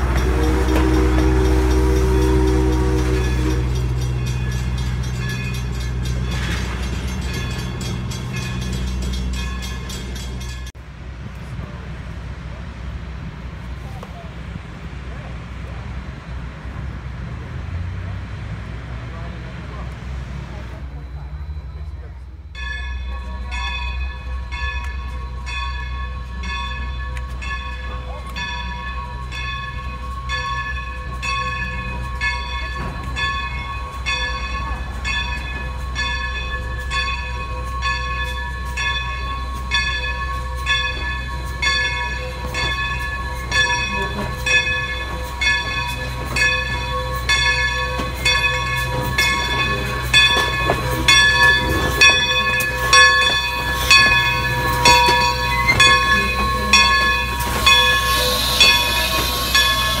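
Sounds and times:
locomotive bell ringing: 0:00.0 - 0:10.8, 0:20.7 - 1:00.0
locomotive low rumble: 0:00.0 - 1:00.0
steam hissing: 0:24.1 - 1:00.0.

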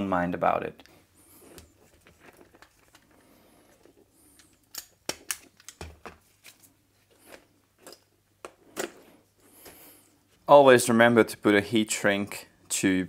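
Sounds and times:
wires rustling: 0:00.8 - 0:10.5.

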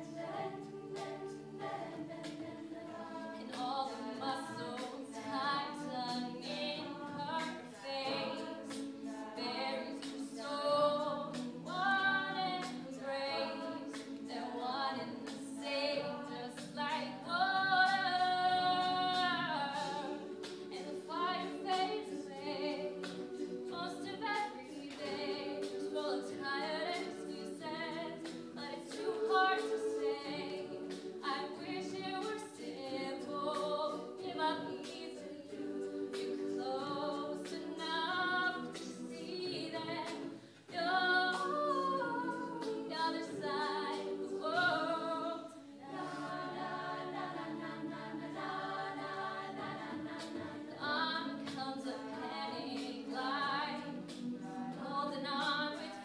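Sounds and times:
female backing harmonies: 0:00.0 - 0:56.0.

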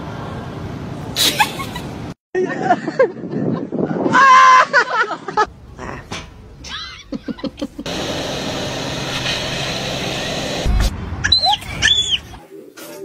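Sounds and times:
wind rushing at open window: 0:00.0 - 0:06.7
small plane engine drone: 0:07.8 - 0:10.9.

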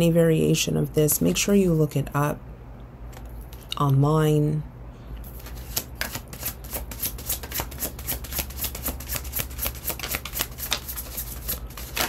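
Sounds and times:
cards being shuffled: 0:05.2 - 0:12.0.

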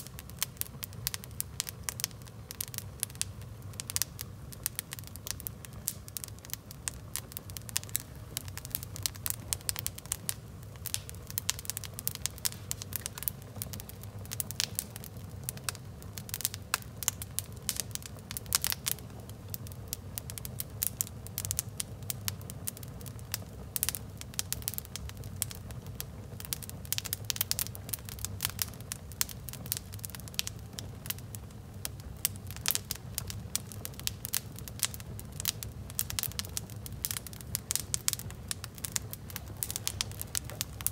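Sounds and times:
wood fire crackling and popping: 0:00.0 - 0:40.9.

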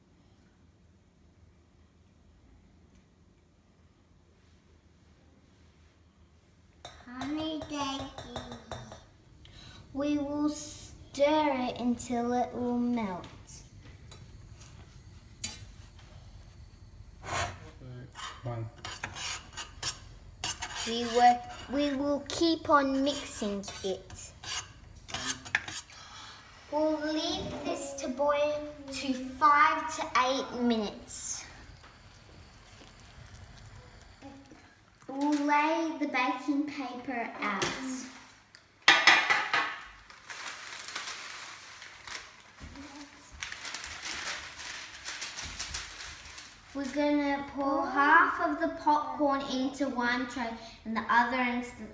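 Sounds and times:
metal spoon scraping saucepan: 0:17.2 - 0:22.0, 0:22.9 - 0:26.0
baking paper rustling and crinkling: 0:40.0 - 0:47.2.

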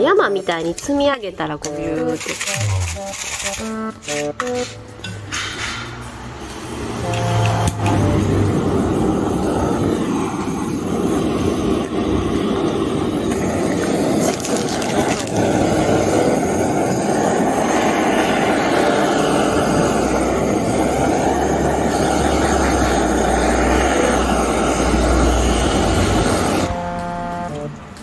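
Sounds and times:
gas torch flame hissing: 0:06.0 - 0:27.4.

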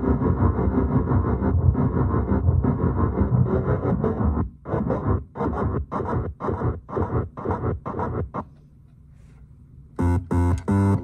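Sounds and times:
buzzy electronic synth tones: 0:00.0 - 0:08.4, 0:10.0 - 0:11.0.

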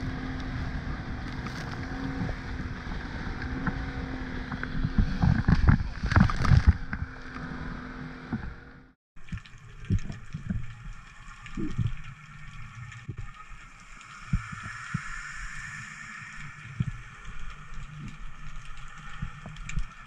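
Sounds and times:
boat noise: 0:00.0 - 0:20.0
wind: 0:00.0 - 0:20.0
muffled underwater water hiss: 0:09.4 - 0:20.0.

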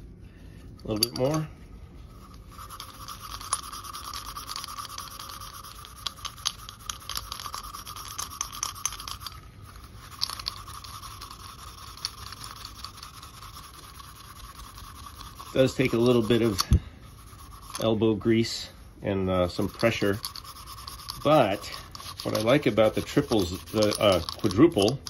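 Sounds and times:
steel wool scrubbing metal: 0:00.7 - 0:18.7, 0:19.4 - 0:25.0.

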